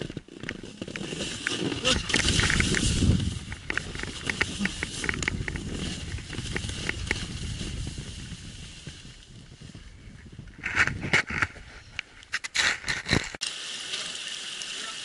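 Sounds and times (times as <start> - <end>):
snowboard hissing on snow: 13.4 - 15.0.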